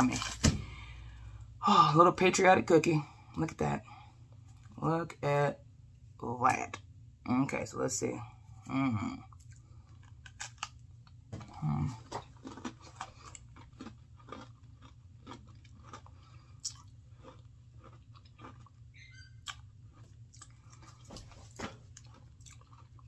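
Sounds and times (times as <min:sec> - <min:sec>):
chewing and crunching cookie: 0:08.6 - 0:23.0.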